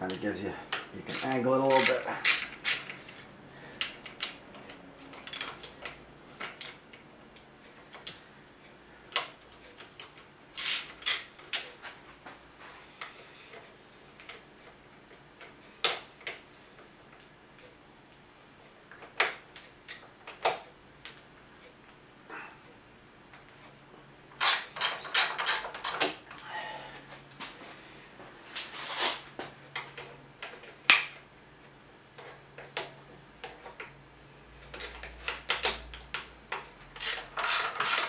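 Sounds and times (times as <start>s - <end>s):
metal tool clicks and clinks: 1.1s - 3.3s, 24.4s - 26.2s, 37.0s - 38.0s.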